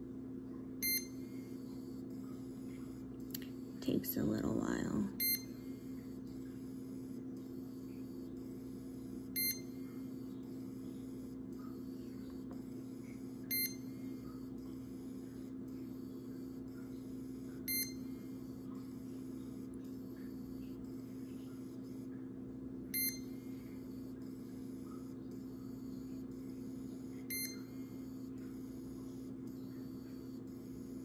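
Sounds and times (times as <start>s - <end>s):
low electrical hum: 0.0s - 31.0s.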